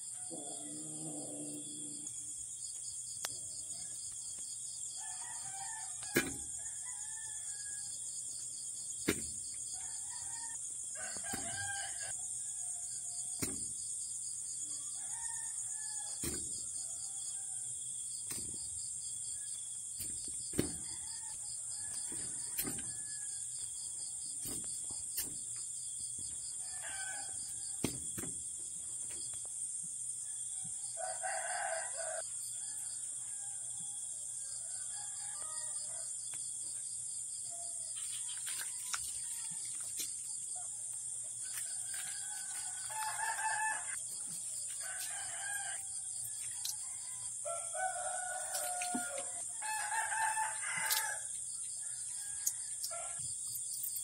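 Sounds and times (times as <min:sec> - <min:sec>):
roosters crowing: 0:00.0 - 0:02.2, 0:04.9 - 0:08.0, 0:09.6 - 0:13.6, 0:19.2 - 0:25.4, 0:26.4 - 0:28.3, 0:30.4 - 0:36.1, 0:41.4 - 0:53.3.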